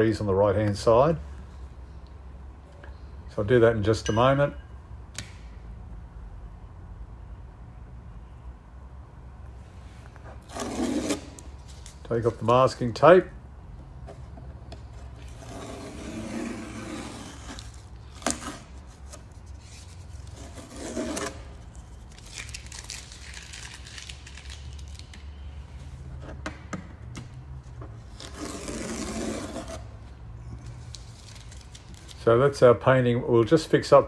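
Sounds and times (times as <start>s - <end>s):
masking tape peeling off: 10.2s - 12.1s, 15.0s - 26.2s, 28.0s - 32.2s.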